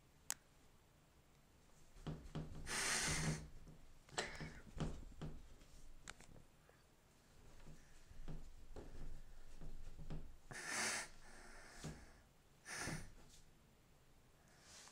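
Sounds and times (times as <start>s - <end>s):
cat breathy snorts: 2.6s - 3.5s, 10.5s - 12.1s, 12.7s - 13.2s.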